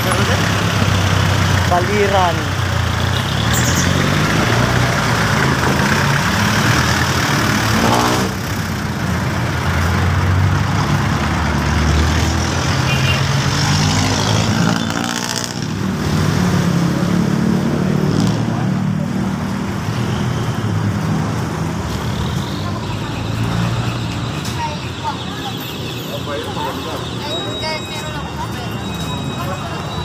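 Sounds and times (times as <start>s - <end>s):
vehicle engine revving: 0.0s - 19.9s.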